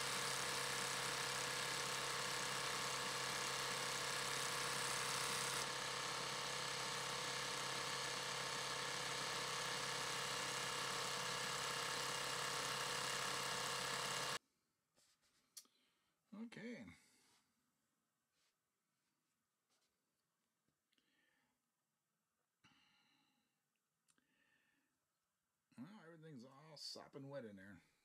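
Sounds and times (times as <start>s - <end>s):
sewing machine running: 0.0s - 14.4s.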